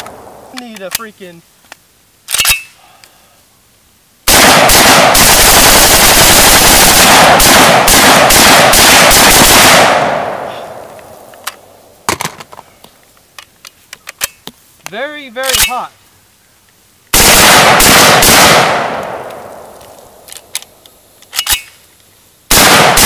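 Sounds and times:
rifle handling clicks: 0.0 - 1.1, 1.7 - 3.1, 10.9 - 12.6, 13.2 - 14.6, 15.4 - 15.8, 19.0 - 22.1
automatic rifle bursts: 17.2 - 19.4.

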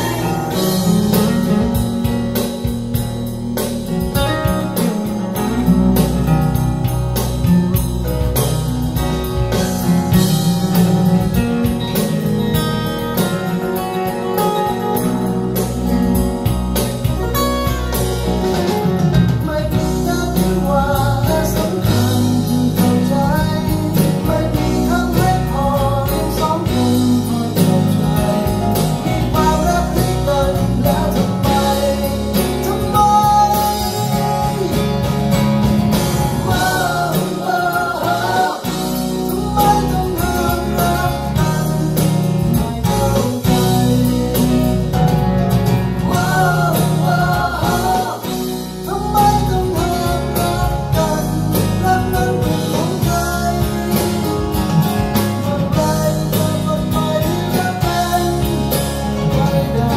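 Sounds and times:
song with guitar over loudspeakers: 0.0 - 59.9
person singing: 18.8 - 35.1, 36.4 - 45.0, 46.0 - 59.9.

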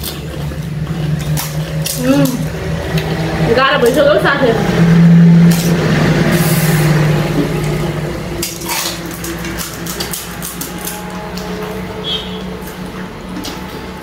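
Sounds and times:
crisp shells cracking and chewing: 0.0 - 4.0, 7.4 - 14.0.

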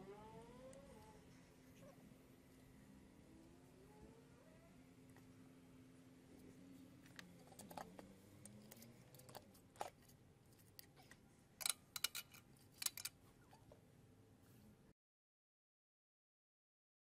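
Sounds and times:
faint steady hum: 0.0 - 14.9
hand tools clicking on metal: 11.6 - 13.1.

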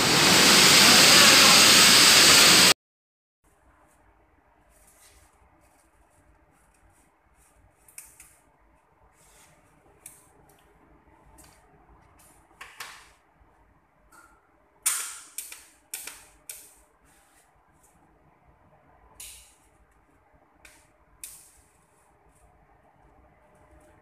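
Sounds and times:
welding arc hiss: 0.0 - 2.8.

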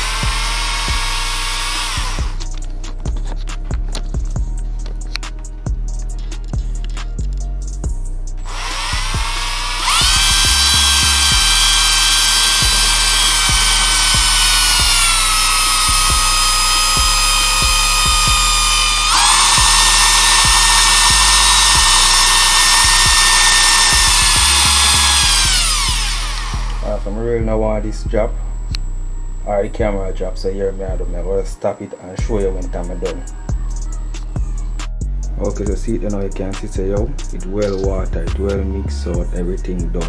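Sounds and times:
power drill motor whine: 0.0 - 2.6, 8.4 - 34.8
music beat: 0.0 - 40.0.

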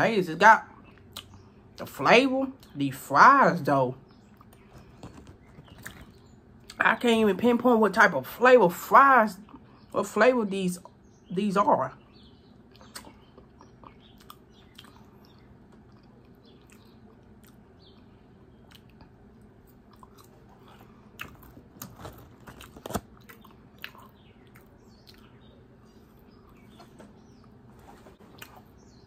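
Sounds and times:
person chewing fries: 12.7 - 26.6.

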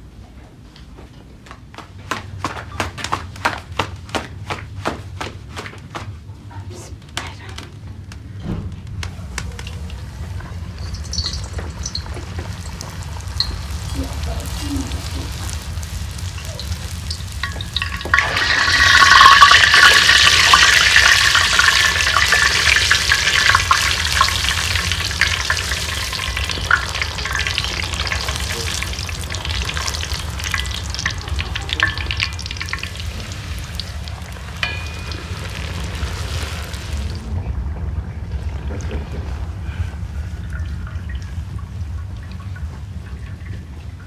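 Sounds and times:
dough sizzling in hot oil: 9.4 - 37.3.

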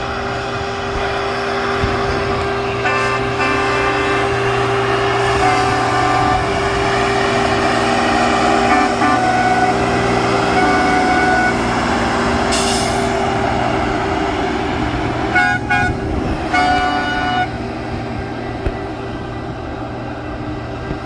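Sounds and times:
rail machine engine humming: 0.0 - 21.0
horn toots: 2.8 - 4.4, 5.3 - 6.6, 8.6 - 11.7, 15.3 - 17.6.

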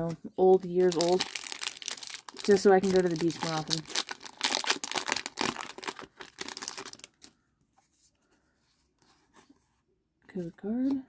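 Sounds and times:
cards rustling: 0.0 - 9.7
foil wrapper crinkling: 0.6 - 7.3.

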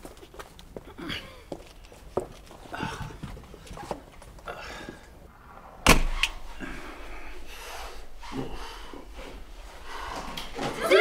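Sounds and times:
faint knocks and shuffling: 0.0 - 5.3, 6.2 - 11.0
door banging shut: 5.8 - 6.5.

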